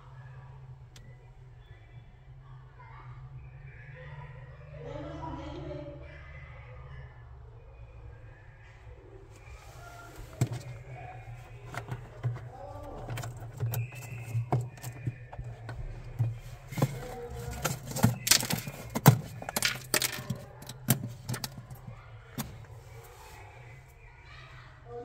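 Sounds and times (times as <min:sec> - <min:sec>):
hand handling wiring and parts: 0:09.3 - 0:24.1.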